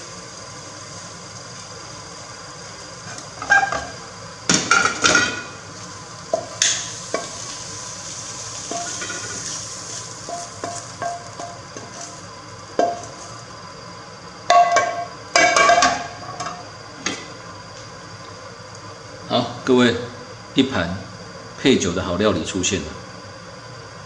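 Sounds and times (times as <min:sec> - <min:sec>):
faint sizzle: 0:00.0 - 0:24.0
frying pan clanking: 0:03.1 - 0:05.6, 0:06.3 - 0:07.6, 0:08.6 - 0:12.2, 0:12.8 - 0:13.2, 0:14.5 - 0:16.6.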